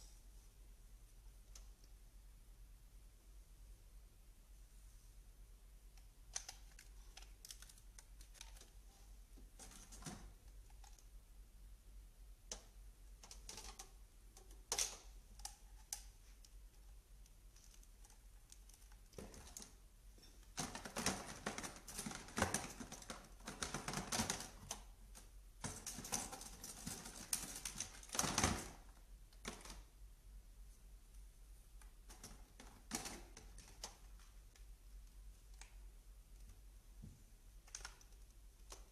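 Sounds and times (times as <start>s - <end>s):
plastic parts clicking and rattling: 6.0s - 11.2s, 12.5s - 29.9s, 31.8s - 35.8s, 37.6s - 38.9s.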